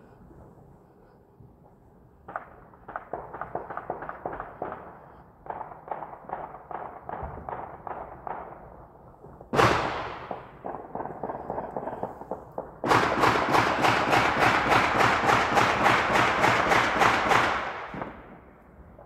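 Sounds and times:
firecrackers popping: 2.2s - 19.0s.

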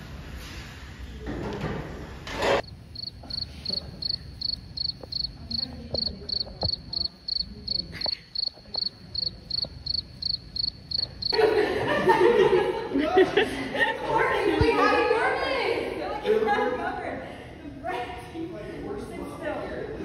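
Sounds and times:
crickets chirping: 2.6s - 11.4s
classroom chatter: 11.4s - 20.0s.

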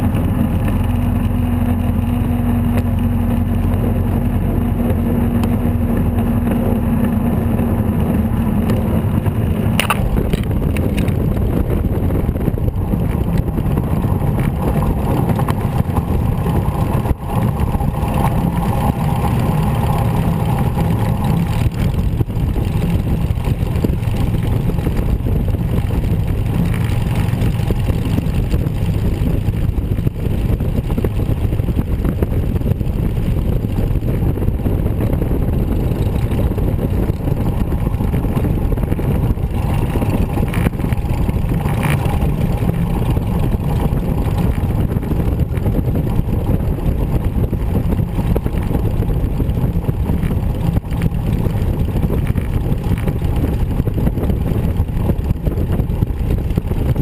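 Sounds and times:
aircraft piston engine and propeller: 0.0s - 57.0s.

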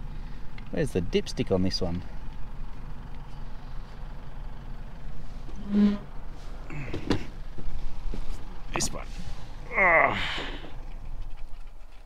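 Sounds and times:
short hum: 5.5s - 7.0s.

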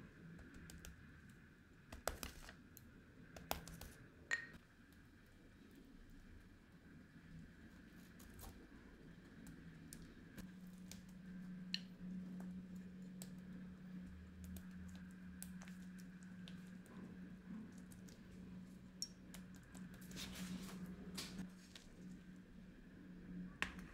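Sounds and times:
low steady hum: 0.0s - 23.9s
pastry brush dabbing cake: 7.7s - 22.4s.

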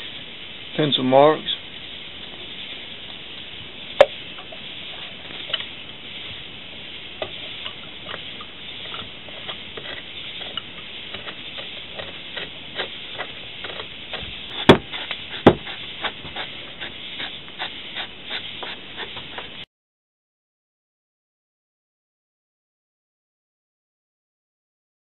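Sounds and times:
sharp metal knocks: 14.6s - 15.7s.

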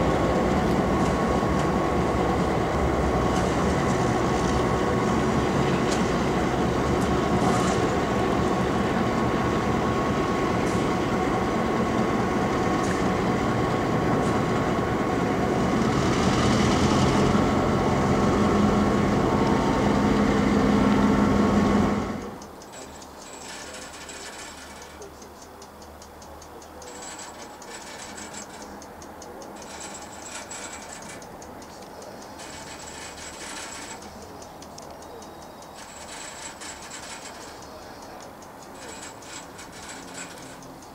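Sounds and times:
locomotive diesel engine running: 0.0s - 25.6s, 26.4s - 40.9s
fast even ticking: 22.2s - 40.9s.

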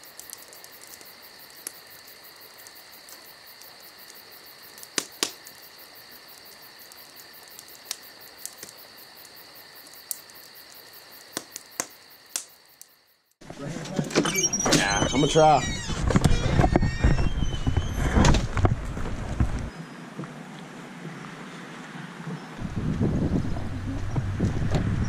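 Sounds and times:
insects trilling: 0.0s - 13.4s, 14.2s - 18.0s.

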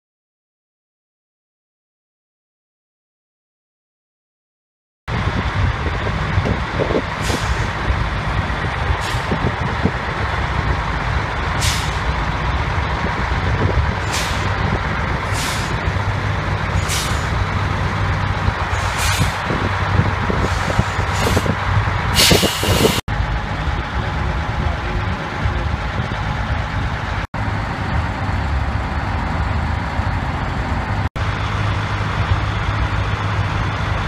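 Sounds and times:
diesel engine idling: 5.1s - 34.0s
air hissing: 7.2s - 7.8s, 11.6s - 12.2s, 14.0s - 14.6s, 15.3s - 15.9s, 16.8s - 17.4s, 18.7s - 19.5s, 20.4s - 23.0s.

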